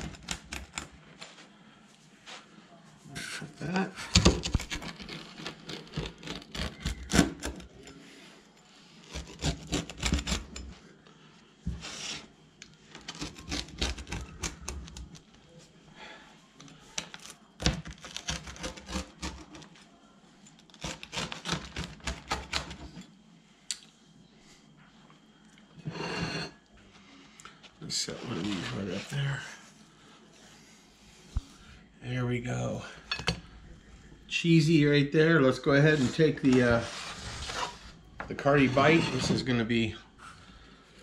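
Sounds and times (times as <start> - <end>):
pizza cutter slicing crisp crust: 4.3 - 7.9, 9.0 - 10.6, 13.0 - 15.1, 17.6 - 19.7, 20.7 - 22.8.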